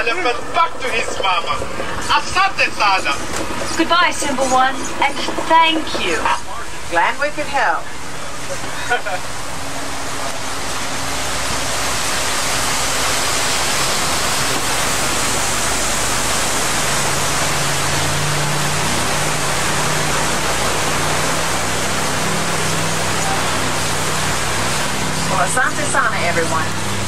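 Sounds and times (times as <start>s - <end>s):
truck engine humming: 0.0s - 27.0s
waterfall rushing: 0.0s - 27.0s.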